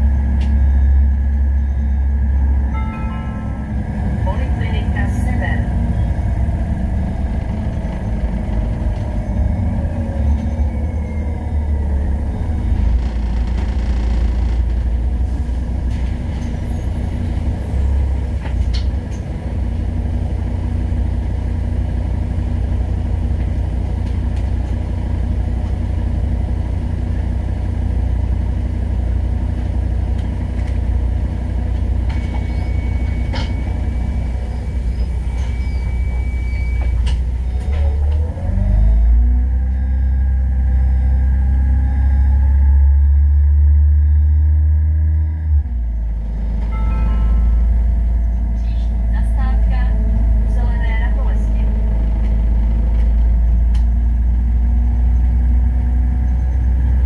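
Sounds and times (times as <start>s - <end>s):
falling whine: 0.0s - 15.3s, 45.5s - 49.2s
bus engine rumble: 0.0s - 57.0s.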